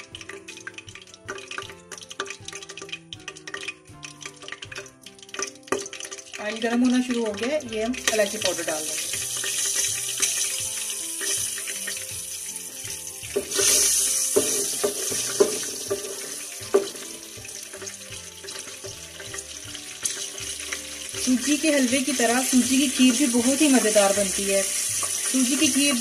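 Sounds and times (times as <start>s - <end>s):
spatula tapping on pan: 0.0s - 6.2s, 13.3s - 21.2s
spice sizzling in hot oil: 0.0s - 26.0s.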